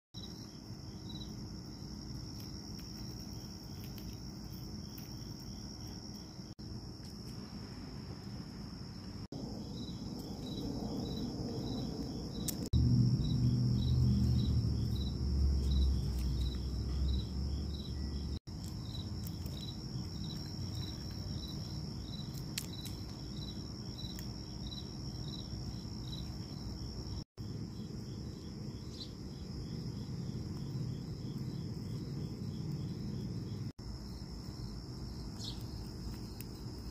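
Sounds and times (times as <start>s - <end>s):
insects chirping: 0.2s - 36.9s
low rumble: 7.5s - 18.4s.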